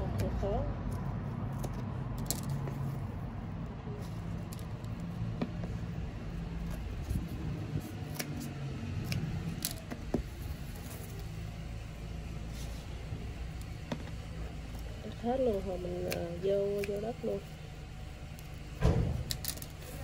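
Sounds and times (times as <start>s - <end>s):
scissors snipping chives: 6.6s - 11.3s, 14.7s - 17.4s.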